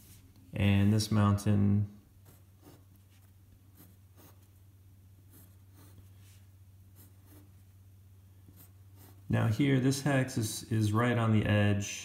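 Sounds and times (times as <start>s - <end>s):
pencil scratching on paper: 2.2s - 4.6s, 5.3s - 7.7s, 8.4s - 9.3s.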